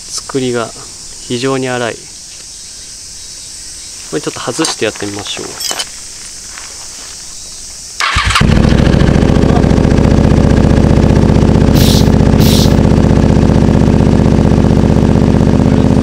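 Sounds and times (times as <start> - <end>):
engine starter: 8.0 - 10.3, 11.6 - 12.8
motorcycle engine idling loudly: 8.0 - 16.0
short hisses: 11.8 - 12.8.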